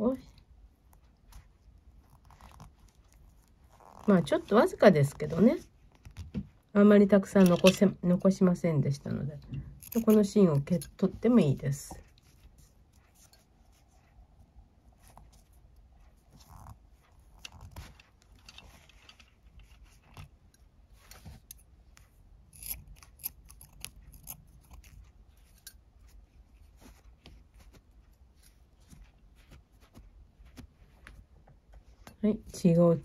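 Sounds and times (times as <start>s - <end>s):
nylon cord rubbing: 0.4s - 6.7s, 9.6s - 32.2s
scissor snips: 9.8s - 10.9s, 22.5s - 25.8s.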